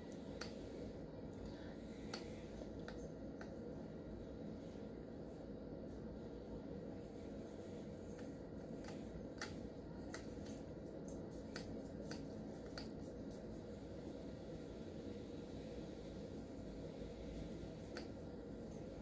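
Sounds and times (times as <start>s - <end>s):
faint low hum: 0.0s - 19.0s
light irregular clicks: 0.1s - 0.6s, 1.3s - 3.8s, 8.0s - 13.7s, 17.8s - 19.0s.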